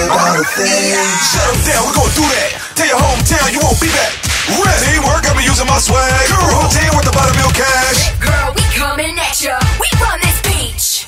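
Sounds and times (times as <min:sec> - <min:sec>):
rapping over hip-hop beat: 0:00.0 - 0:11.0
deep sliding bass notes: 0:04.6 - 0:09.3.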